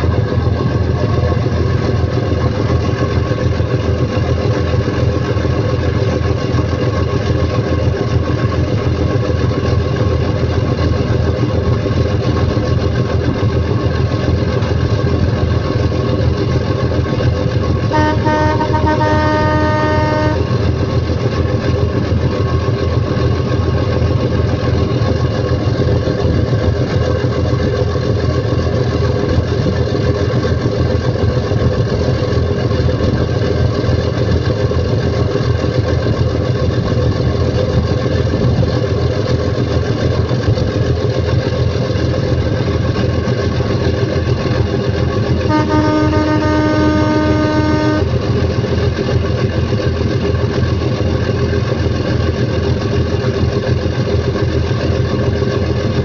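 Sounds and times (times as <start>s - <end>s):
boat engine droning: 0.0s - 56.0s
boat horn blast: 17.8s - 21.3s, 45.4s - 48.6s.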